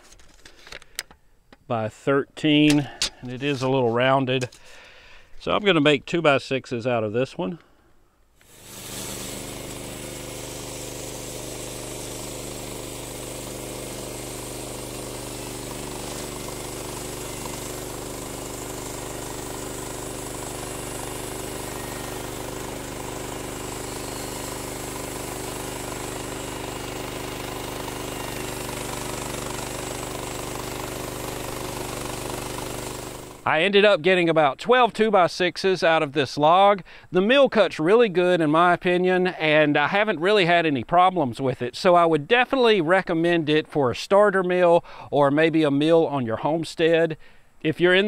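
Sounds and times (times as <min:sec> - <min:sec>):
gas engine running: 0:08.4 - 0:33.5.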